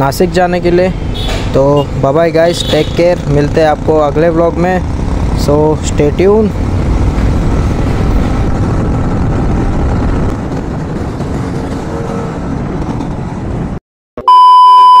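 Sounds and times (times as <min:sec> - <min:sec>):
wind and road noise: 0:00.0 - 0:13.8
steady electronic beep: 0:14.2 - 0:15.0.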